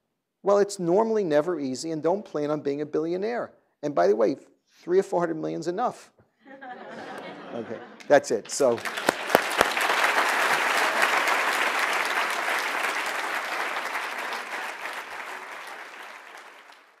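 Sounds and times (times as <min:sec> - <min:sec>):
audience applauding: 0:07.1 - 0:17.0.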